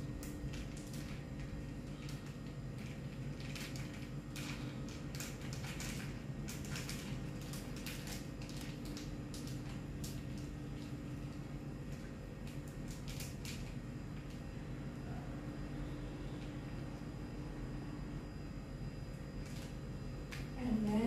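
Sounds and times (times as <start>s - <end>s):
splashes and crackles: 0.0s - 14.5s.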